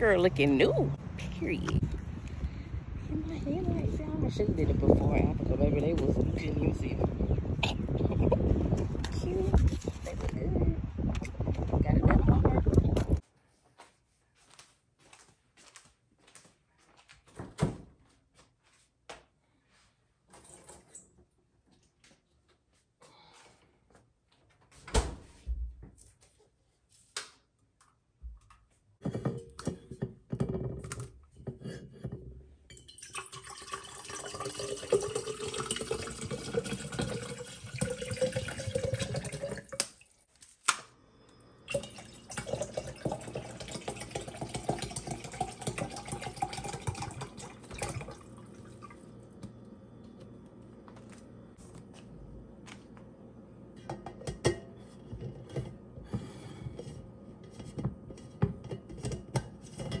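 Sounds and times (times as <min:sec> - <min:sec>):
water pouring into tumbler: 0:32.7 - 0:40.2, 0:41.7 - 0:49.2.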